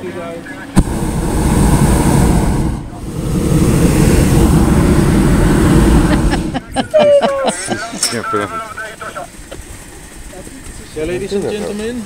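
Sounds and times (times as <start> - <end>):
propane burner firing: 0.8 - 6.8.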